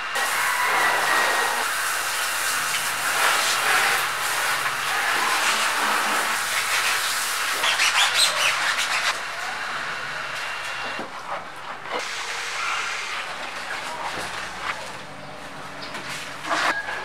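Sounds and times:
hose water spraying: 0.0 - 9.6, 11.8 - 15.0
sponge scrubbing and splashing: 0.2 - 9.2.

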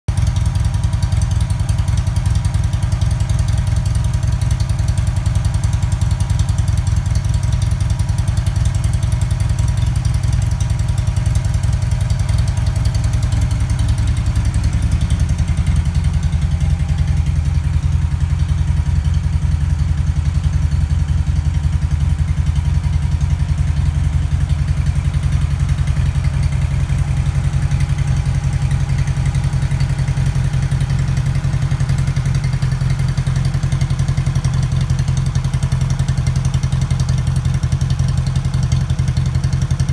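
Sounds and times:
motorcycle engine idling: 0.1 - 39.9.

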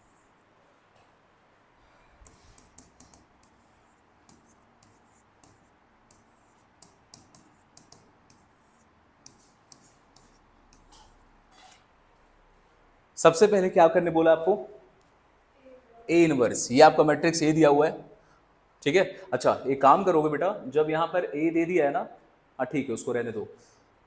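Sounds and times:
pen scratching while writing: 2.2 - 11.8.

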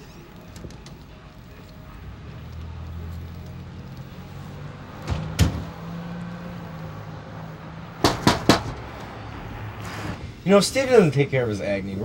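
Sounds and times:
car engine idling: 1.0 - 11.5
car door slamming: 5.0 - 5.7
sharp knocks: 8.0 - 8.9.

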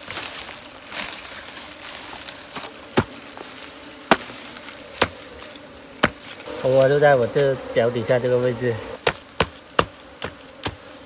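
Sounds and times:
dirt scraping and rustling: 0.0 - 11.0
hoe striking hard soil: 2.9 - 3.2, 4.0 - 4.3, 9.0 - 10.9.

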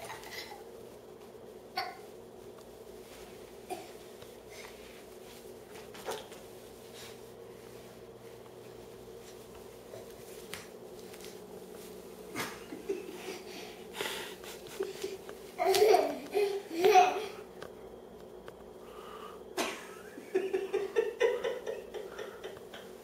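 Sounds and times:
low room hum: 0.0 - 23.0
toddler moving on tile floor: 2.6 - 17.7.

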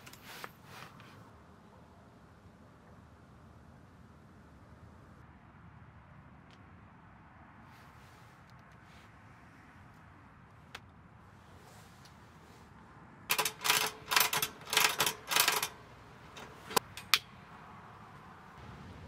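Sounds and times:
kerosene heater rattling clicks: 13.3 - 17.3
sharp clicks: 13.3 - 17.4.

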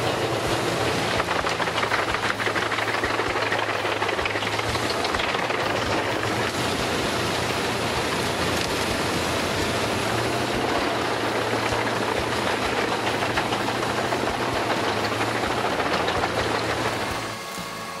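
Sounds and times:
wood chipper engine drone: 0.0 - 18.0
wood being chipped: 0.1 - 6.6, 10.0 - 17.3.

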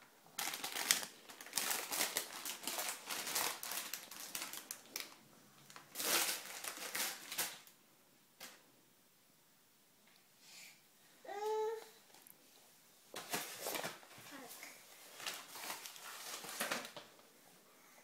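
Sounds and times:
plastic bags crinkling: 0.3 - 7.8, 13.2 - 17.1.

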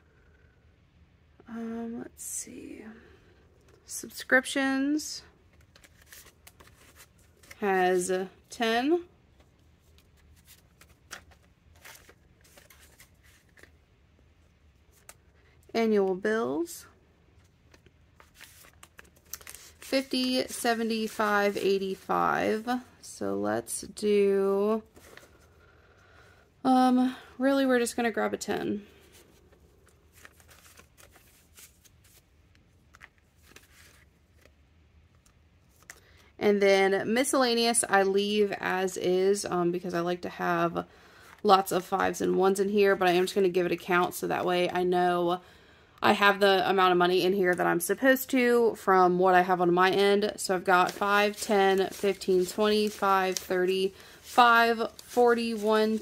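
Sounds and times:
paper and plastic pocket rustling: 5.5 - 7.6, 9.4 - 13.8, 17.4 - 22.2, 29.1 - 36.0, 50.6 - 56.0.

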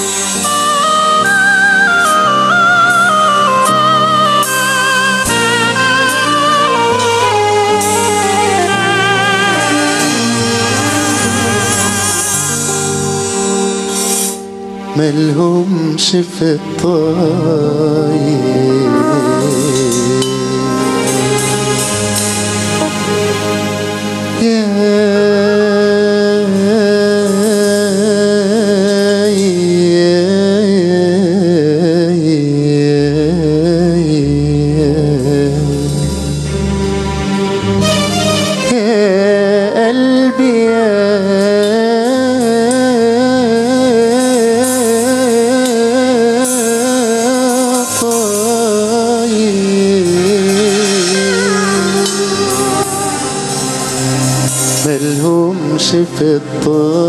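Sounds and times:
ornamented melody with vibrato: 0.0 - 57.0
drums and hand percussion: 6.9 - 14.4, 43.8 - 55.3
man singing melismatic phrase: 14.9 - 21.4, 38.6 - 54.0, 54.8 - 57.0.

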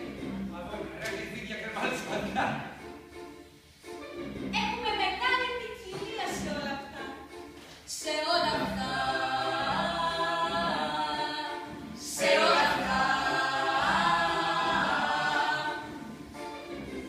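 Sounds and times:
group of people singing unaccompanied: 7.9 - 17.0.

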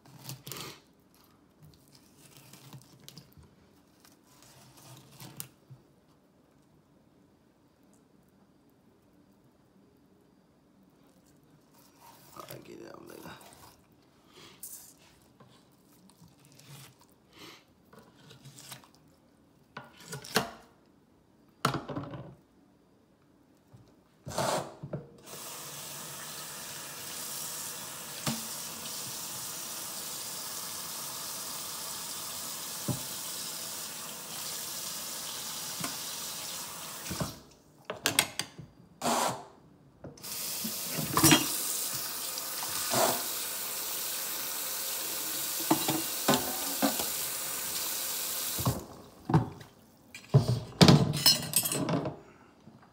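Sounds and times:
faucet running into steel sink: 25.3 - 37.2.

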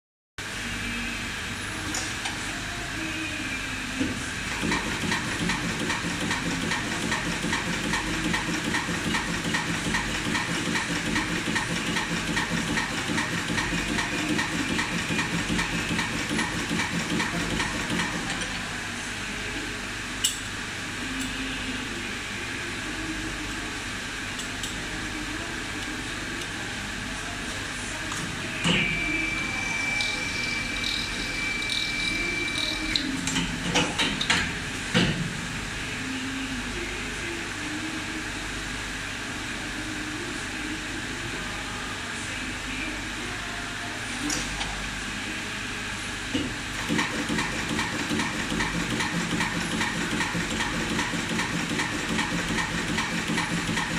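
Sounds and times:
machine mechanical clatter: 4.5 - 18.5, 46.8 - 53.9
steady high tone: 28.3 - 33.3.

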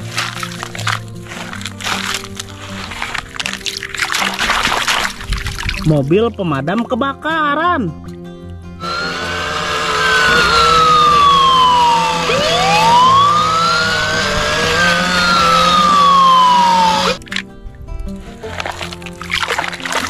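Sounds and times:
toy electronic wail siren: 8.8 - 17.2.

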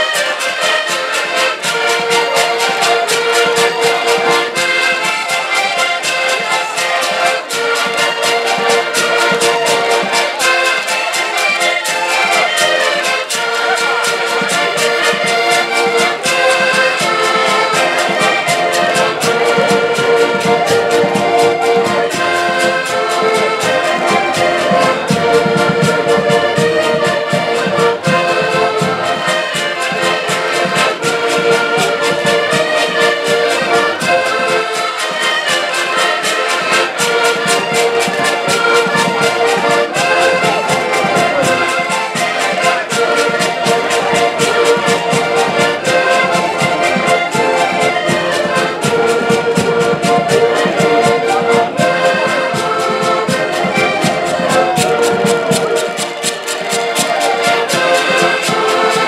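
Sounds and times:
accordions playing folk tune: 0.0 - 59.0.

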